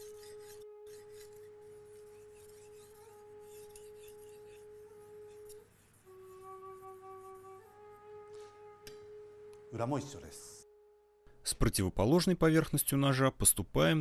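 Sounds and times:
knife scraping on whetstone: 0:00.0 - 0:06.4
soft flute-like music: 0:00.0 - 0:11.3.

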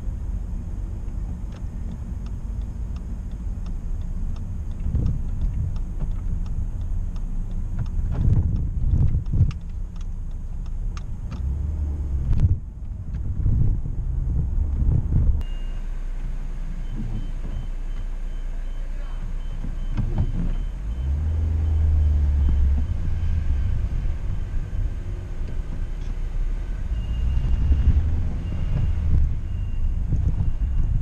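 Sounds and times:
car engine and road rumble: 0:00.0 - 0:31.0
short high beeps: 0:15.4 - 0:16.0.

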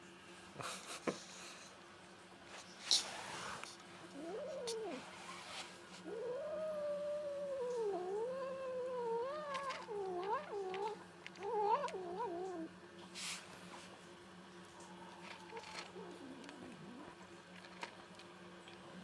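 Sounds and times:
cat yowling: 0:06.0 - 0:12.7.

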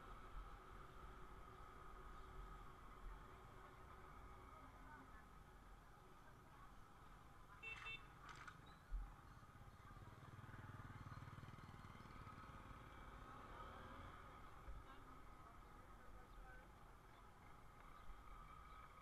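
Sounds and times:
motorcycle engine passing: 0:09.6 - 0:14.5.

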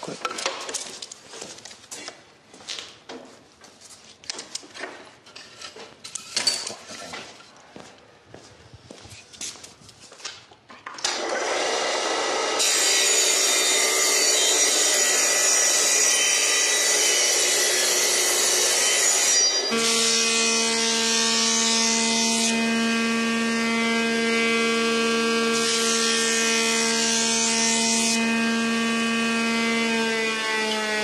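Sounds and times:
table saw cutting wood: 0:11.0 - 0:31.0.

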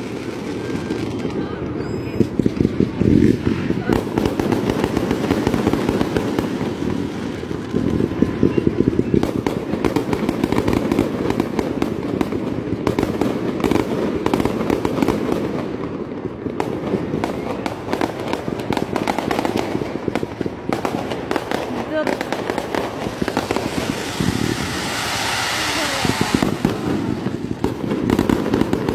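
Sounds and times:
fireworks bangs and crackles: 0:00.0 - 0:28.9
low rumble: 0:22.9 - 0:27.6.

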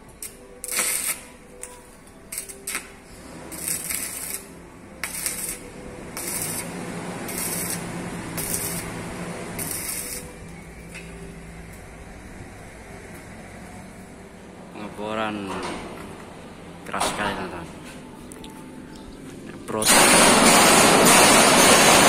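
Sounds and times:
crackling welding arc: 0:00.2 - 0:10.9, 0:19.8 - 0:22.0.

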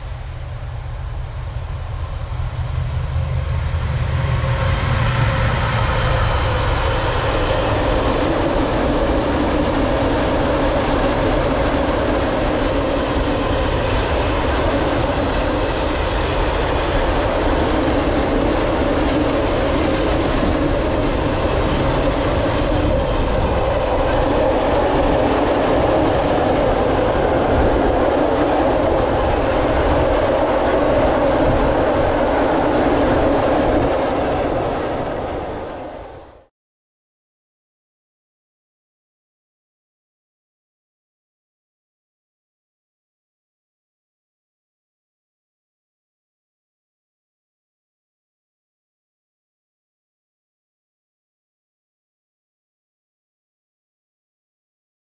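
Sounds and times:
electric locomotive approaching: 0:00.0 - 0:36.5.

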